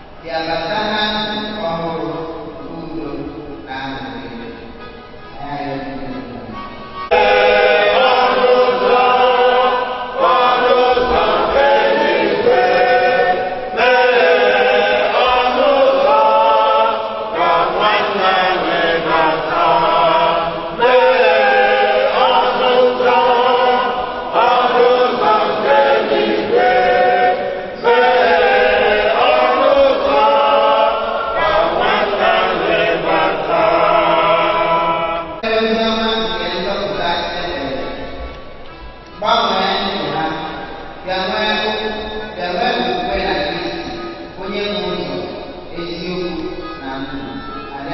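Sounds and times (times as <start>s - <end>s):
choir singing a hymn: 6.6s - 36.3s.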